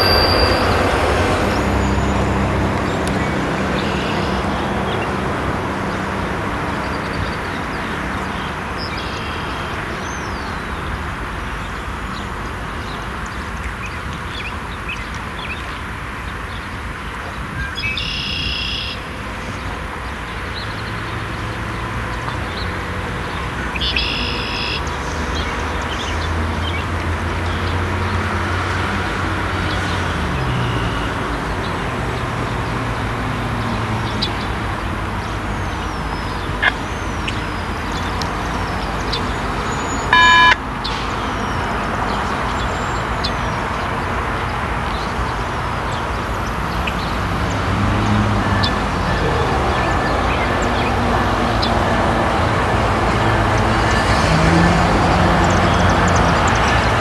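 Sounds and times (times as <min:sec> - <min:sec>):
birds chirping: 0:00.0 - 0:57.0
vehicle noise: 0:00.0 - 0:57.0
short high beep: 0:40.1 - 0:40.6.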